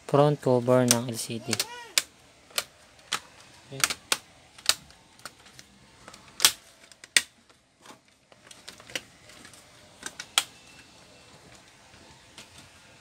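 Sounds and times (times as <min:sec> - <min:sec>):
plastic clips snapping: 0:00.8 - 0:07.6.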